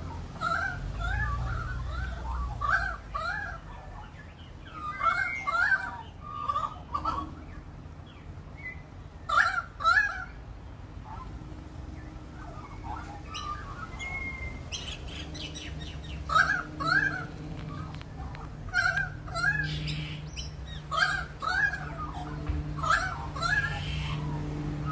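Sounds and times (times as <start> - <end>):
magpie warbling: 0.4 - 7.6, 12.4 - 24.9.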